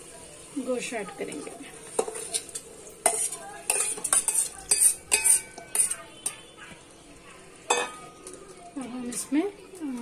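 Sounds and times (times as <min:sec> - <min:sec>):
metal spoon scraping pot: 0:01.9 - 0:06.4
spoon knocking on pot: 0:03.1 - 0:06.4, 0:07.7 - 0:08.1.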